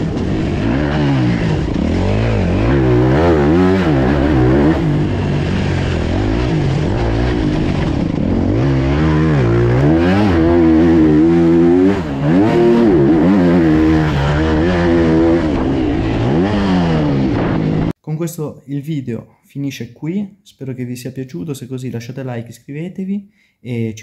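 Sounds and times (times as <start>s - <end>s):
motocross bike engine revving: 0.0s - 17.9s.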